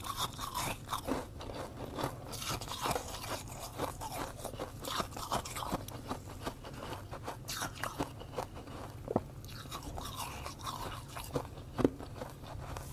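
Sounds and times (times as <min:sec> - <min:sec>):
mouth crunching ice: 0:00.0 - 0:08.9.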